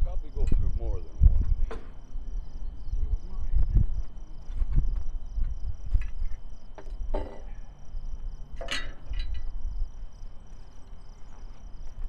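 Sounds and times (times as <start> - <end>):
insects chirping: 0.0 - 12.0
metal clank: 6.8 - 7.6, 8.6 - 9.5.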